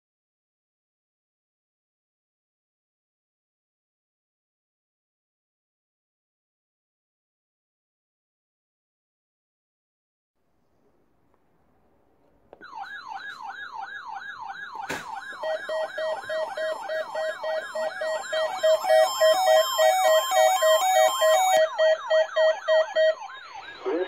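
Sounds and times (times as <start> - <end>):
siren-like falling sweep alarm: 12.6 - 24.0
pulsed electronic beeps: 13.9 - 24.0.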